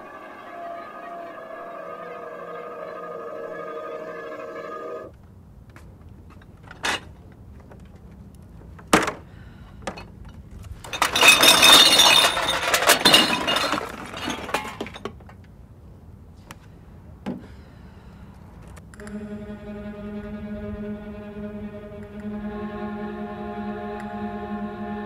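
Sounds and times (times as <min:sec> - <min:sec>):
glass bottles and cans clattering: 0:10.8 - 0:15.2.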